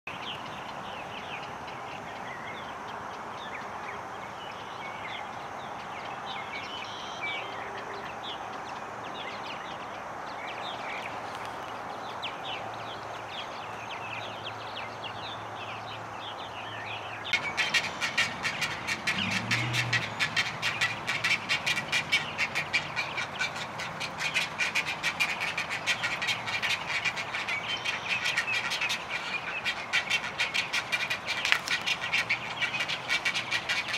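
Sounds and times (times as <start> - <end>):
bird chirps: 6.5 - 8.4, 16.6 - 33.9
low bird call: 17.3 - 33.9
rapid clicking bird chatter: 17.3 - 33.9.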